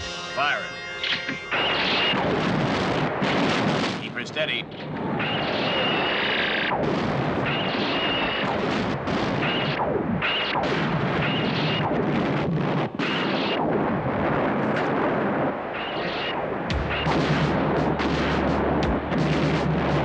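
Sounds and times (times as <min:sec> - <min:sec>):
high tone: 0:00.0 - 0:02.3
continuous din of blasts: 0:00.0 - 0:20.0
laser zaps falling in pitch: 0:07.4 - 0:12.0.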